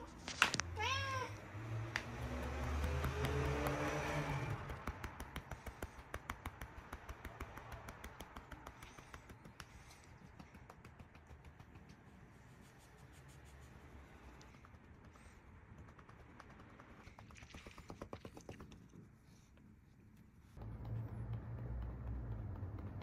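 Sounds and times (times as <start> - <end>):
cat meowing: 0.8 - 1.4
light rapid clicks: 1.9 - 12.3, 14.3 - 19.0, 20.2 - 23.0.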